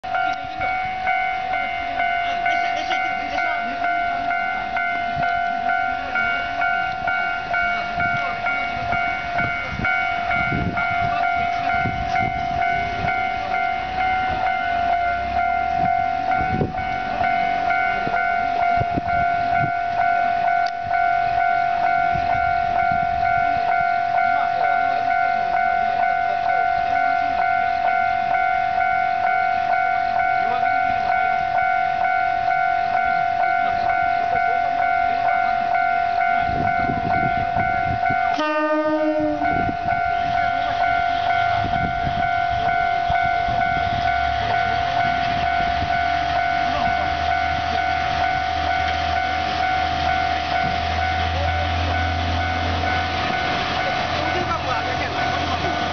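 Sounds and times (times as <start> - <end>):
diesel engine rumbling: 0.0 - 55.9
level crossing alarm ringing: 0.0 - 55.9
train horn blast: 36.4 - 53.6.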